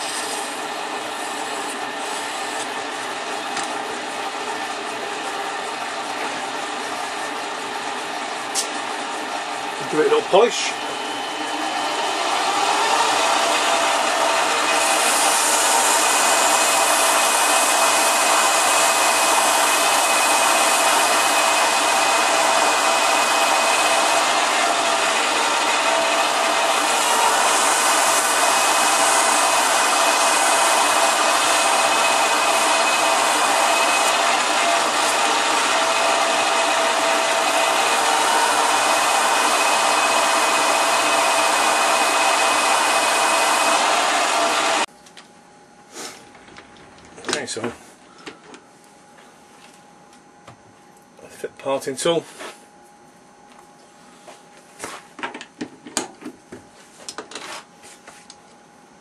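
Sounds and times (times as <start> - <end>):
lathe motor whine: 0.0 - 44.9.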